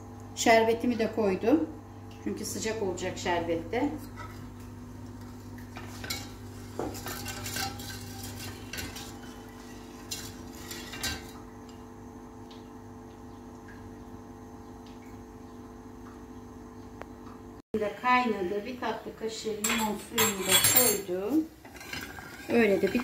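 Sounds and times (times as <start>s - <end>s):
faint steady hum: 0.0s - 23.0s
metal utensils knocking on pot: 19.6s - 21.1s.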